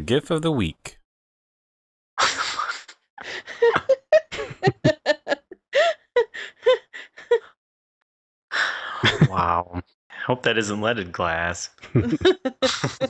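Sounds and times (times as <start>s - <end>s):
people laughing and giggling: 2.2s - 5.6s, 9.0s - 9.8s, 11.8s - 13.0s.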